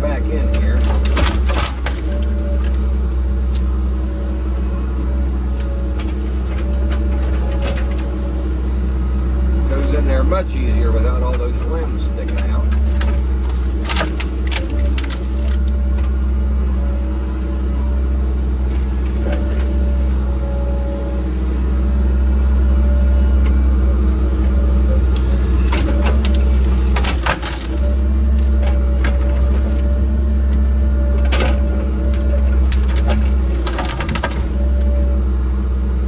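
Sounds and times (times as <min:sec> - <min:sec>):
engine running steadily: 0:00.0 - 0:36.0
branches crackling and snapping: 0:00.4 - 0:03.9, 0:05.3 - 0:08.4, 0:12.1 - 0:16.4, 0:24.5 - 0:35.1.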